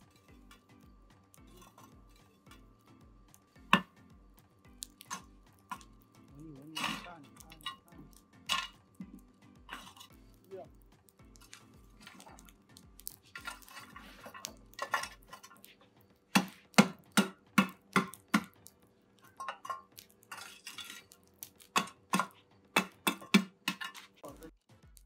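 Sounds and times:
metal scoop scraping charcoal: 0.0 - 18.6, 19.2 - 24.5
sharp clinking knocks on metal: 21.7 - 24.1.

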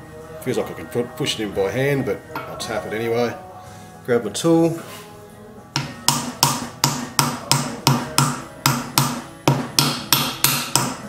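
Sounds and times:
hammer tapping metal: 5.8 - 11.0.

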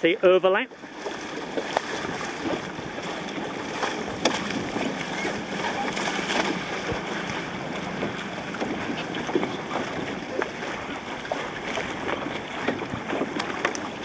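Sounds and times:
rush of water: 0.0 - 14.0
water slapping against boat hull: 0.0 - 14.0
wind: 0.0 - 14.0.

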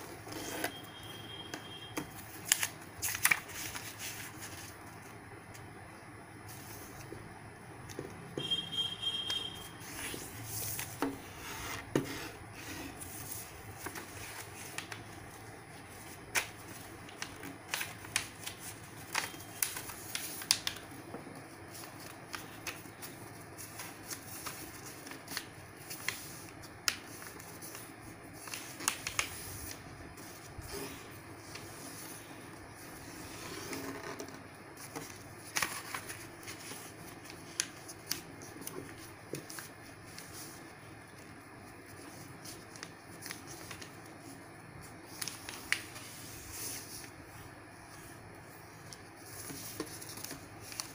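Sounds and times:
paper being folded and creased: 2.1 - 5.2, 9.8 - 50.9.

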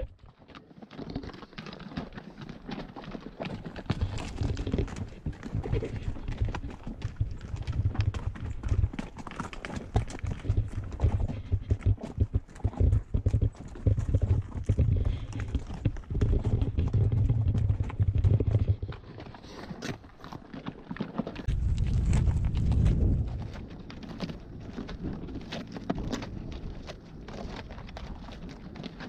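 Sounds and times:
horse hooves clip-clopping: 0.0 - 29.0
low bumps: 21.4 - 26.9.

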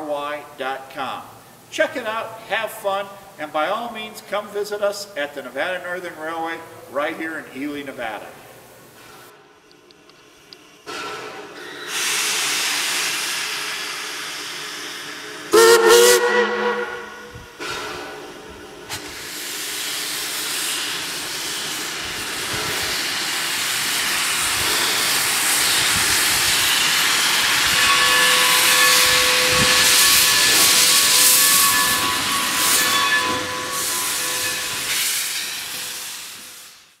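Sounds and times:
steam locomotive hissing: 10.2 - 37.0.

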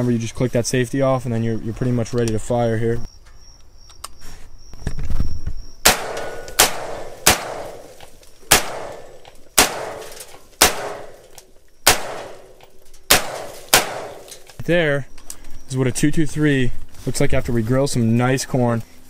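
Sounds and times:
rifle shots with echo: 5.8 - 14.4.

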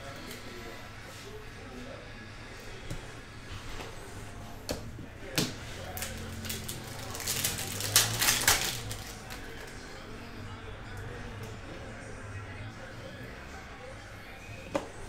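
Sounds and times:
foil wrapper crinkling and tearing: 5.8 - 9.7.

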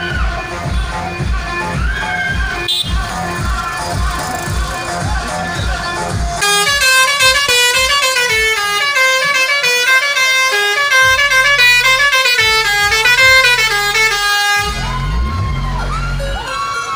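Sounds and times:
music with heavy bass beat: 0.0 - 16.9
musical air horns playing a tune: 2.6 - 3.2, 6.4 - 15.2.

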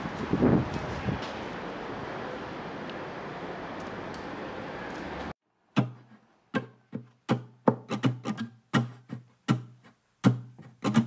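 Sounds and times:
plucked-string notes: 5.8 - 11.0.

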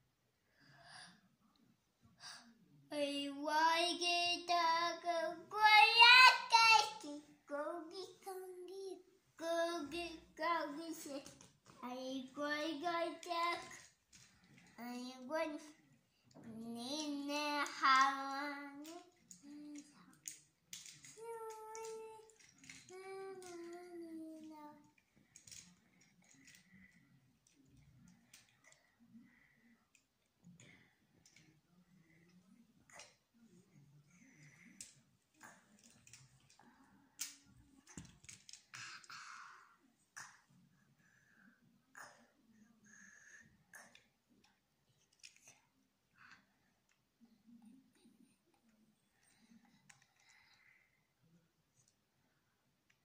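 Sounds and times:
toddler singing wordlessly: 2.9 - 13.8, 14.8 - 15.8, 16.4 - 19.8, 21.2 - 24.8.

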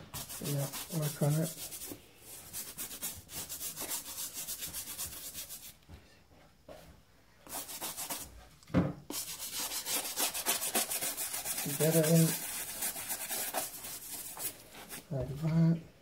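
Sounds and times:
toothbrush scrubbing rubber sole: 0.2 - 1.9, 9.1 - 15.0.

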